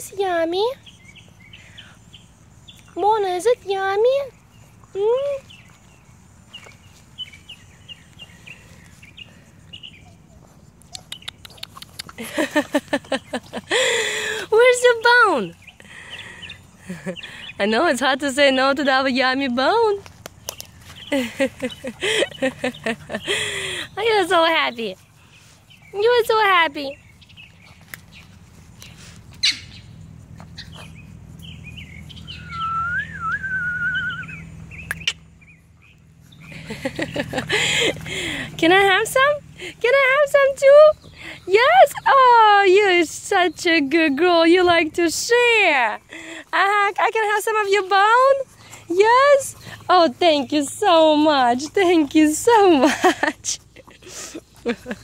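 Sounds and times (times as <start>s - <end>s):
small bird chirping: 0.1s - 19.5s, 20.3s - 45.4s
sharp clicks: 10.8s - 12.2s, 34.8s - 35.3s
wavering whistled bird call: 32.1s - 35.2s.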